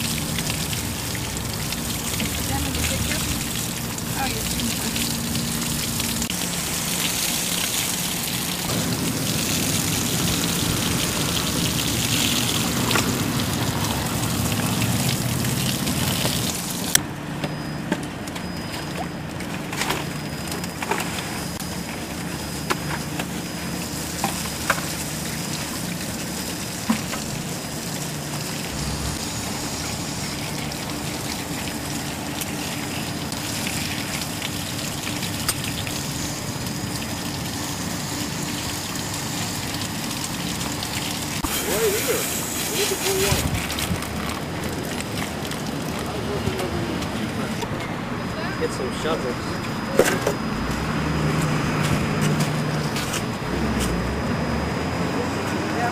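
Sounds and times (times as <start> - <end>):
hose water spraying on mud: 0.0 - 17.0, 20.7 - 47.7.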